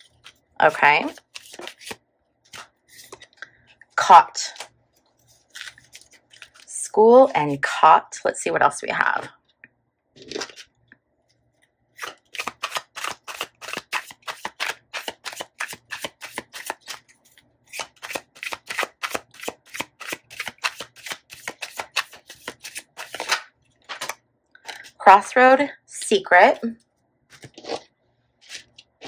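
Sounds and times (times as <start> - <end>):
cards being shuffled: 1.0 - 3.3, 5.3 - 6.7, 12.0 - 24.9.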